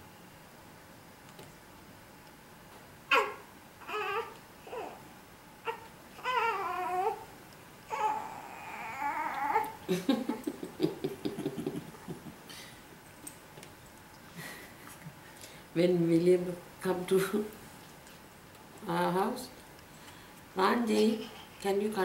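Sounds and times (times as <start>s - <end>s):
baby crying: 3.1s - 5.0s, 5.6s - 7.3s, 7.9s - 9.8s
baby chuckling: 9.9s - 12.4s.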